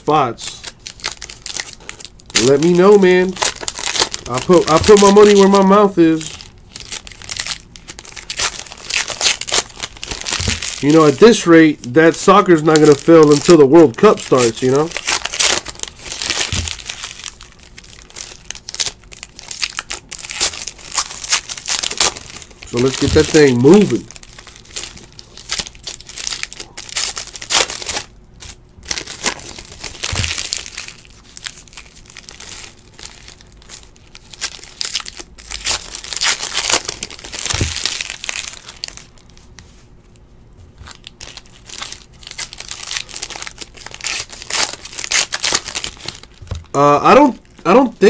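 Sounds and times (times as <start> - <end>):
foil wrappers crinkling: 0.1 - 48.0.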